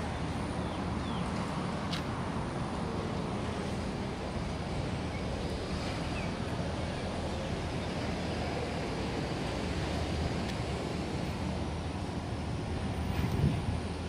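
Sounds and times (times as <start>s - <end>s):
wind buffeting microphone: 3.2s - 14.0s.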